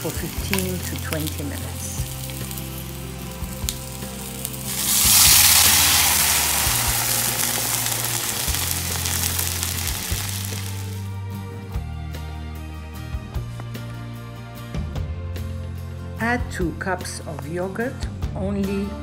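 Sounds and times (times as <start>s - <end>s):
oil sizzling in a pan: 0.0s - 11.1s
water hitting hot oil sizzle: 0.0s - 11.1s.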